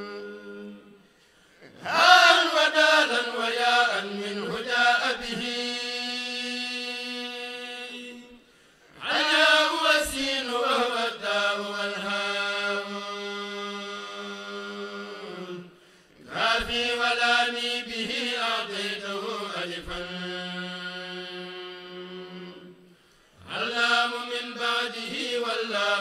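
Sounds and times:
group of men chanting: 1.8s - 5.6s, 9.0s - 15.6s.

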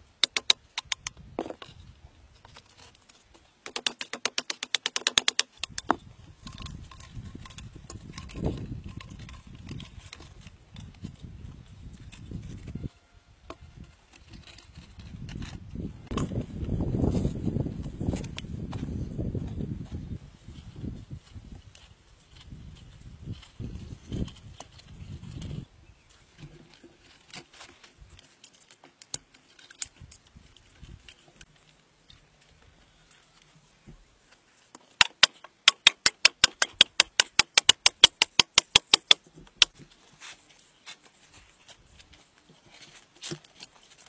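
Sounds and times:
bamboo poles and wire knocking: 0.2s - 1.8s, 2.4s - 11.1s, 34.7s - 40.0s.

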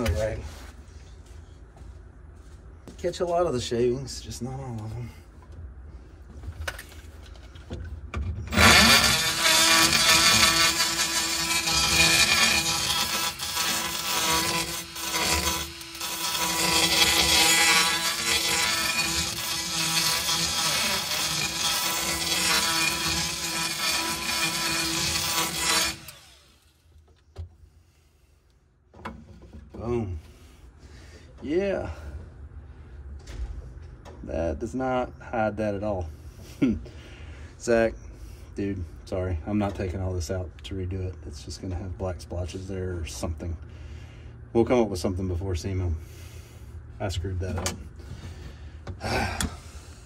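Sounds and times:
power drill cutting: 8.5s - 26.8s.

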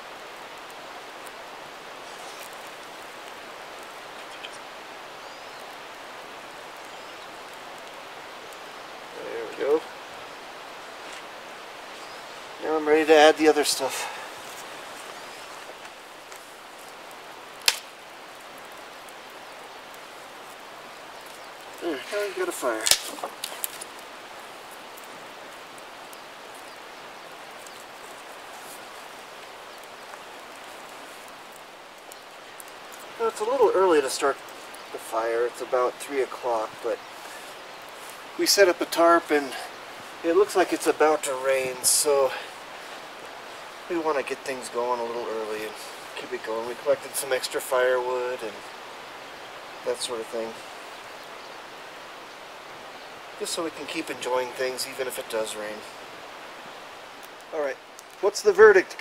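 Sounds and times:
campfire crackling: 0.0s - 59.0s
rushing outdoor background noise: 0.0s - 59.0s
sticks snapping and knocking: 17.6s - 18.0s, 22.8s - 24.0s.

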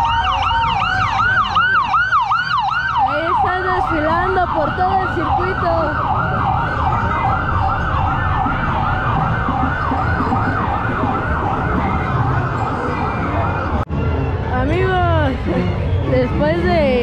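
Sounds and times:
ambulance siren yelping: 0.0s - 14.2s
low street noise rumble: 0.0s - 17.0s.

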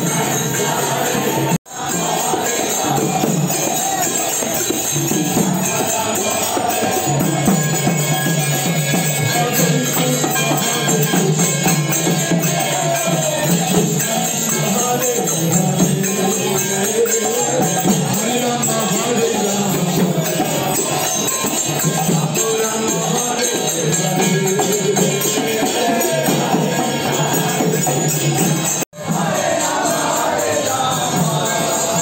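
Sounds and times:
group singing devotional chant: 0.0s - 32.0s
jingling metal percussion: 0.0s - 32.0s.

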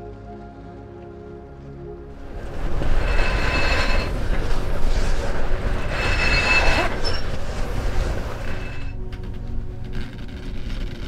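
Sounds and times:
rigging blocks squealing: 2.2s - 9.0s.

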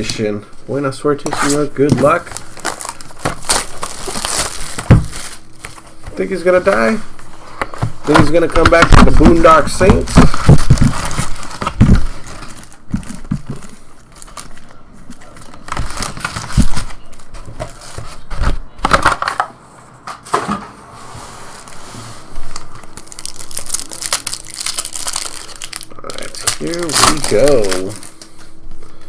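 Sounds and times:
foil packs crinkling: 1.2s - 7.0s, 8.1s - 18.4s, 21.5s - 28.4s.

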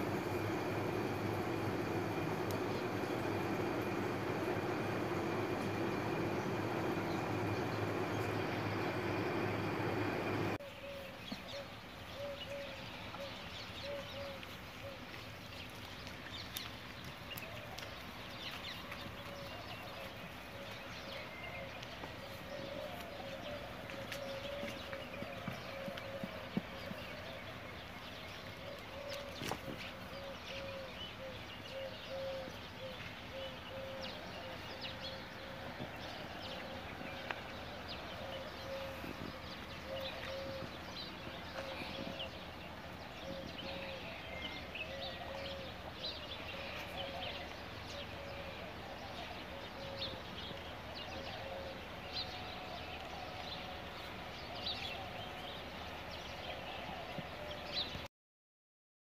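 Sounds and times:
small birds chirping: 0.0s - 58.1s.

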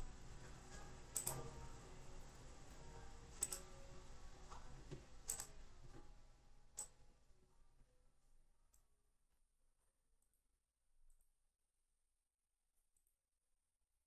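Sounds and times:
computer mouse clicks: 1.1s - 1.5s, 3.4s - 3.7s, 5.3s - 5.6s.

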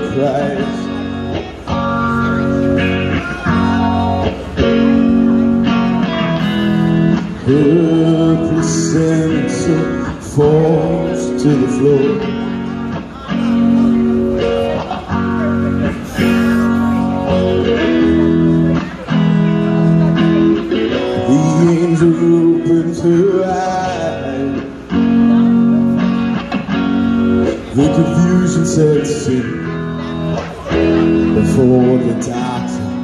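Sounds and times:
man singing into microphone: 0.0s - 1.5s, 7.2s - 12.7s, 20.8s - 25.6s, 27.4s - 30.1s, 30.7s - 33.0s
guitar-led backing music: 0.0s - 33.0s.

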